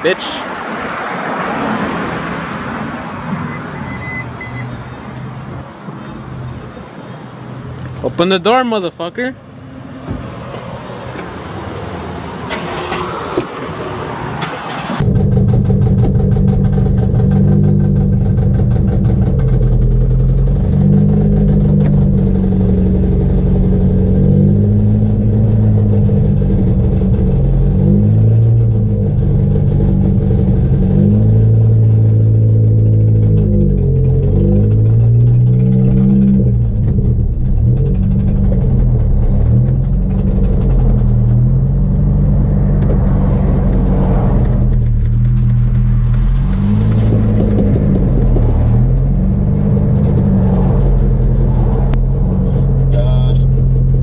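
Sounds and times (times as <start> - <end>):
street traffic: 0.0 - 54.0
cars idling: 13.4 - 54.0.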